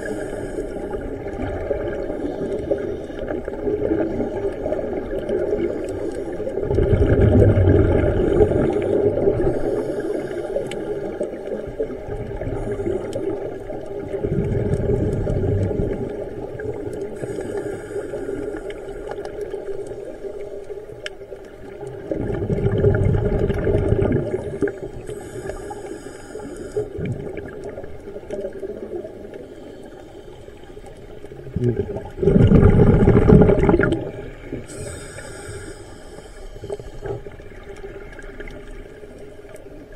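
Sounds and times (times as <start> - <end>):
regulator inhalation hiss: 0.0 - 1.0, 8.3 - 11.1, 17.2 - 19.1, 24.7 - 27.0, 34.7 - 37.2
bubbling regulator exhalations: 6.5 - 9.9, 12.0 - 17.8, 21.8 - 25.6, 31.3 - 35.7.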